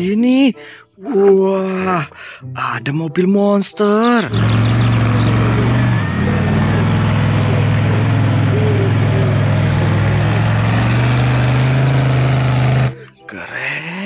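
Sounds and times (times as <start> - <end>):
truck engine revving: 4.2 - 13.0.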